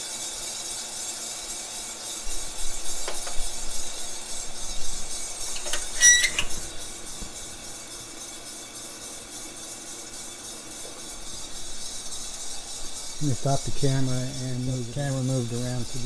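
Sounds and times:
coffee roaster drum and fan hissing: 0.0 - 16.0
kitchen timer beep: 6.0 - 6.4.

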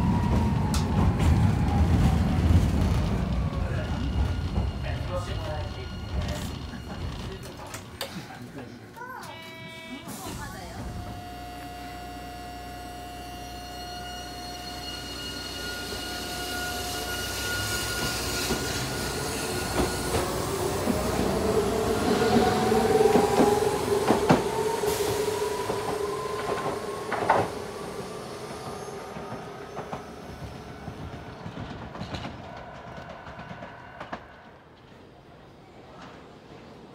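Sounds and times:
tram motor whine rising in pitch: 0.0 - 4.8, 10.7 - 34.6.

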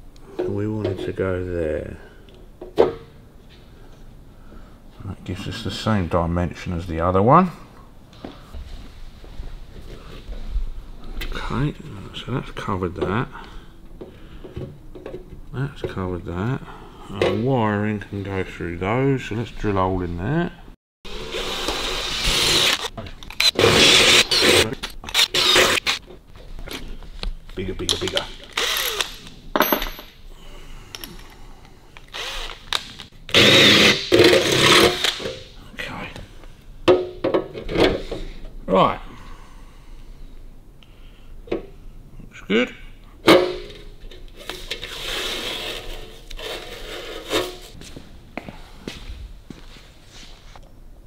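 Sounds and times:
cordless drill boring metal: 21.1 - 26.0, 28.6 - 29.1, 32.1 - 32.7, 33.3 - 35.1.

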